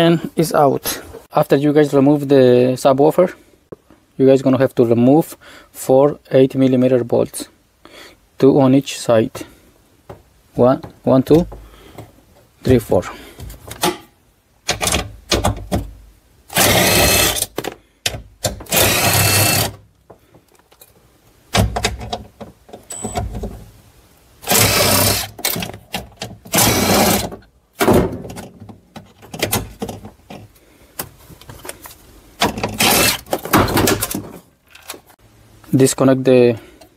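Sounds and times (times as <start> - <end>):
clicks and knocks of tool and bolts: 13.4 - 16.0, 17.4 - 19.0, 19.6 - 23.6, 25.3 - 35.2
power tool bursts: 16.5 - 17.5, 18.7 - 19.8, 24.4 - 25.4, 26.5 - 27.3, 32.6 - 33.3.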